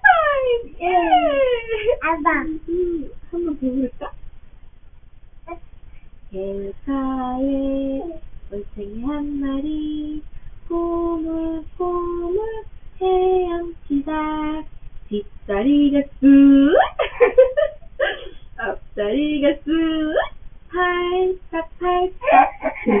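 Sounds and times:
woman singing: 6.3s - 17.0s, 18.6s - 23.0s
high choppy vocal sounds: 21.9s - 23.0s.

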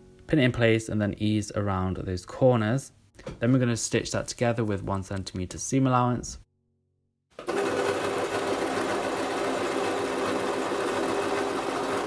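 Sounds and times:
electric sewing machine running: 7.4s - 12.0s.

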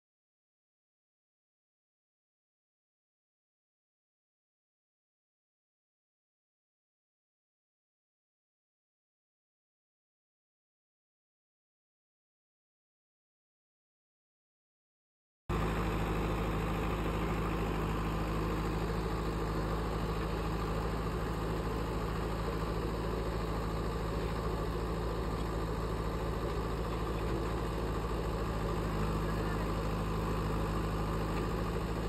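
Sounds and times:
truck engine idling: 15.5s - 32.0s.

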